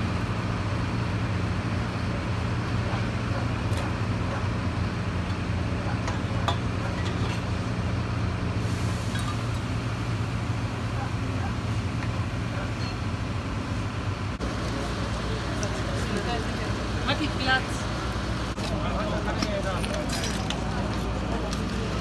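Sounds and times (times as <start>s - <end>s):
brick rubble clinking: 19.2s - 22.0s.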